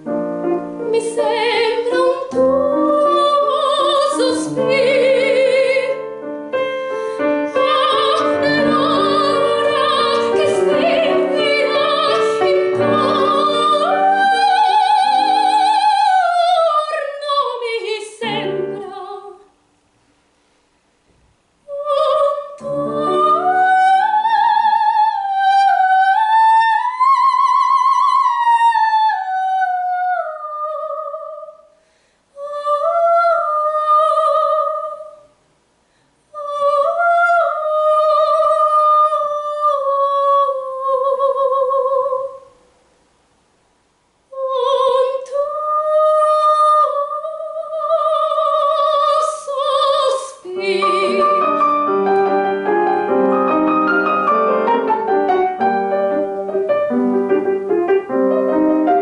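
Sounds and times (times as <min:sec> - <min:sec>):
piano chords: 0:00.0 - 0:17.2, 0:18.2 - 0:19.4, 0:21.7 - 0:27.0, 0:50.5 - 0:59.0
operatic soprano singing: 0:00.1 - 0:19.5, 0:21.7 - 0:31.8, 0:32.4 - 0:35.4, 0:36.3 - 0:42.5, 0:44.3 - 0:56.5.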